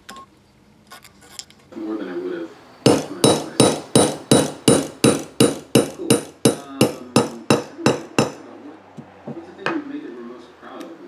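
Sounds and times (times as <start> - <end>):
hammer striking metal: 2.9 - 8.5.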